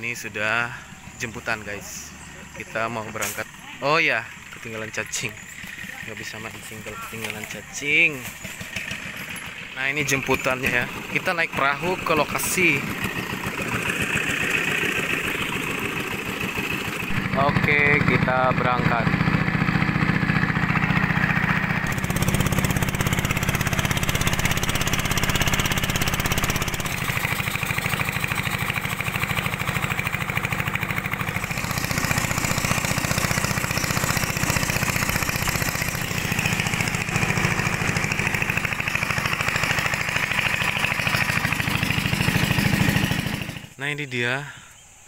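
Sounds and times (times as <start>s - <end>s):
boat engine running: 0.0s - 43.8s.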